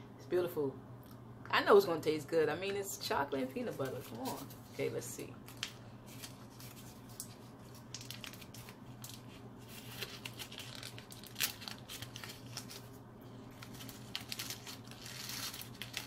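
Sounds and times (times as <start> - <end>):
paper baking cup crinkling: 3.6 - 16.0.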